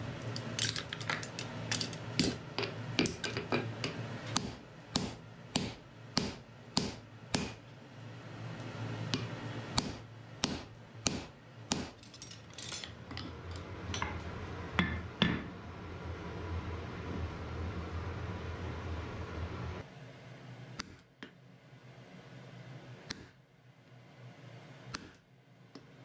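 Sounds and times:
hammer striking hot iron on anvil: 2.2 - 7.6, 9.1 - 12.0, 14.8 - 15.5.

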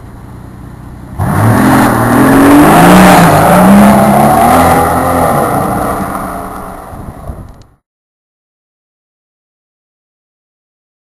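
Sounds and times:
car engine idling: 0.0 - 1.3, 1.9 - 7.7
car accelerating away: 1.2 - 7.2.

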